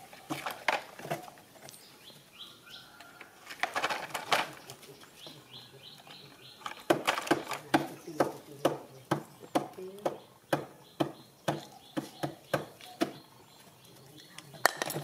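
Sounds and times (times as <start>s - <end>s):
knocks and rustling of plastic toy: 0.1s - 1.4s, 3.4s - 4.8s, 6.0s - 9.2s
monkeys chirping: 4.6s - 14.7s.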